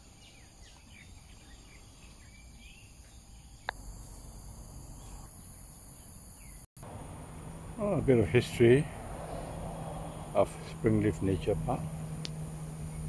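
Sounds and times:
faint bird chirps: 0.0 - 3.7, 4.9 - 6.7
high-pitched insect drone: 1.6 - 7.0
low outdoor rumble: 6.8 - 13.0.

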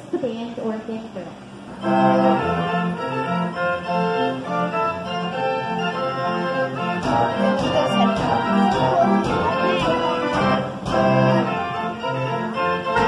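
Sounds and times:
band organ playing a tune: 1.7 - 13.0
drum and cymbal strokes: 6.8 - 11.7.

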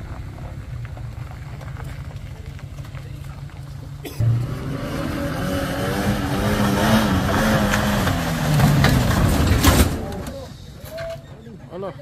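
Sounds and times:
engine revving hard: 4.2 - 9.5.

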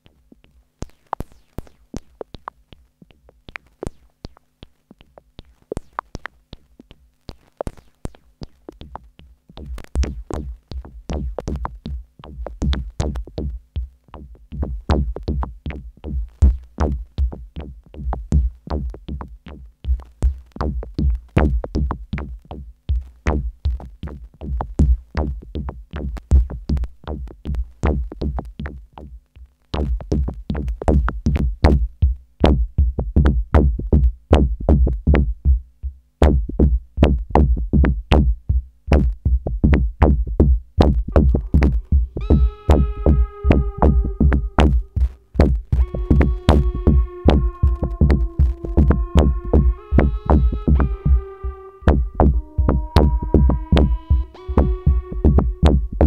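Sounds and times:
fast drum machine beat: 0.0 - 56.0
deep bass pulse: 29.8 - 56.0.

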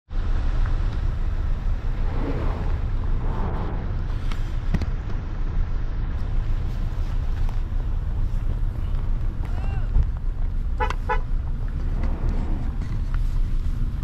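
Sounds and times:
wind buffeting microphone: 1.0 - 10.6.

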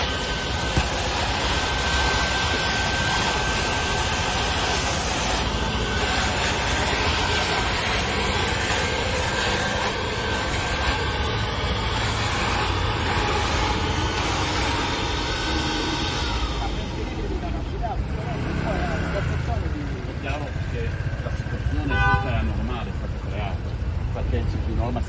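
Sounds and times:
vacuum suction rushing: 0.0 - 19.2.

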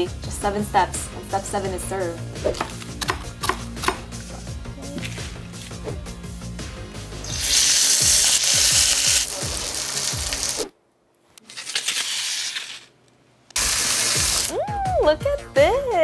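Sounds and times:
background music: 0.0 - 10.7, 13.6 - 16.0
steak sizzling in a frying pan: 7.2 - 10.7, 13.6 - 14.5.

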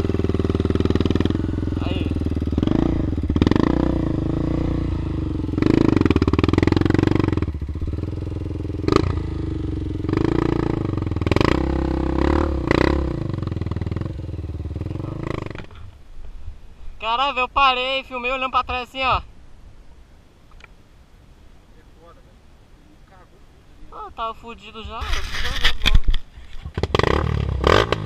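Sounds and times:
motorcycle engine revving: 0.0 - 15.9, 26.6 - 28.0.

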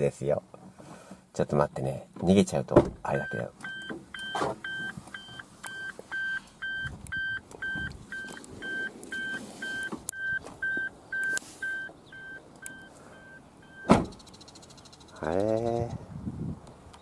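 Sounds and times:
car warning chime beeping: 3.1 - 15.2.

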